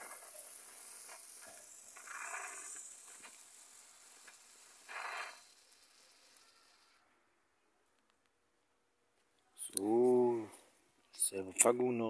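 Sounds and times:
firework fountain hissing: 0.0s - 7.0s.

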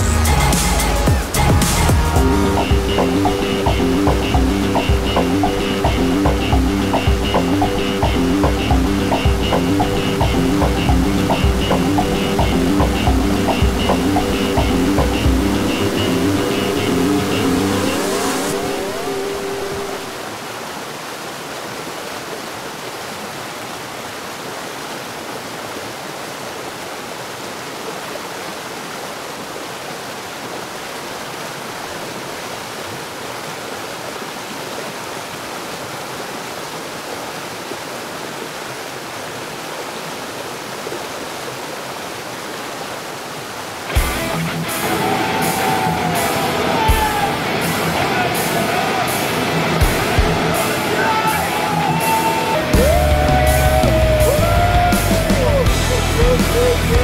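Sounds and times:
rock music with guitar: 0.0s - 18.8s, 44.0s - 57.0s
whitewater river rapids rushing: 0.0s - 57.0s.

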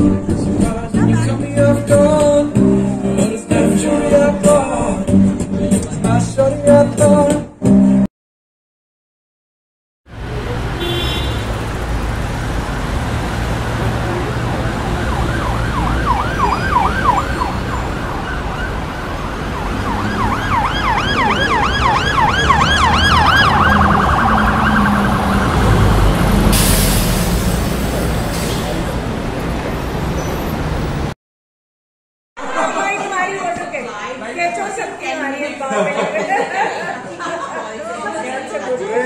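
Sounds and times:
low rumble of city traffic: 10.1s - 31.2s
emergency vehicle siren: 13.8s - 26.7s.

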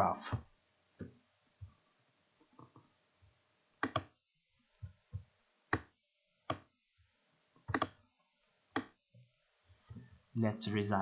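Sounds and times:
computer mouse clicking: 3.8s - 4.1s, 7.6s - 8.0s.

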